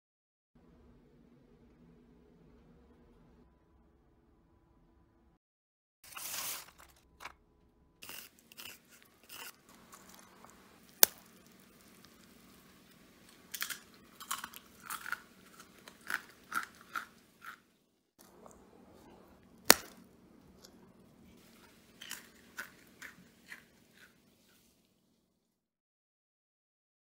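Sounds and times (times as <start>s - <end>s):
crackers crunching: 6.1s - 7.3s, 8.0s - 25.0s
crackers snapping: 8.0s - 17.6s, 19.6s - 20.8s, 21.6s - 24.2s.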